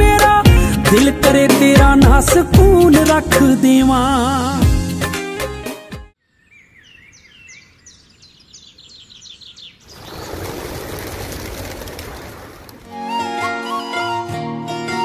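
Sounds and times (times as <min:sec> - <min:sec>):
small birds chirping: 0:06.2 - 0:11.2.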